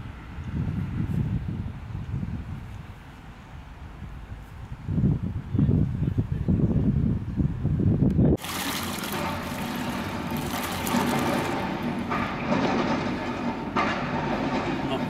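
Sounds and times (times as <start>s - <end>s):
wind rumbling on microphone: 0.0s - 15.0s
paint pouring and splashing: 8.4s - 12.2s.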